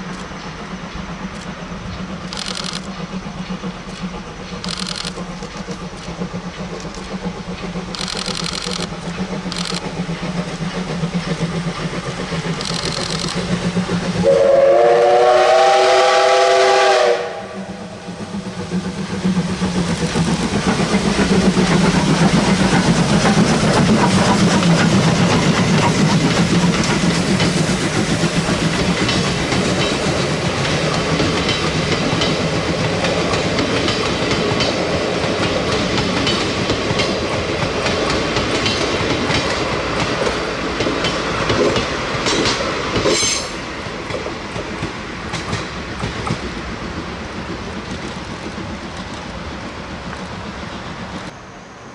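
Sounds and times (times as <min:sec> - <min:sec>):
train wheels clickety-clack: 0:00.0 - 0:51.4
steam locomotive whistle: 0:14.1 - 0:18.3, 0:43.1 - 0:43.6.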